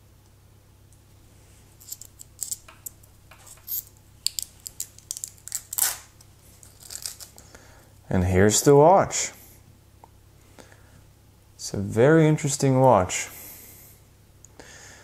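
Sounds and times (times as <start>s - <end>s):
plastic film peeling and crinkling: 1.8s - 7.4s.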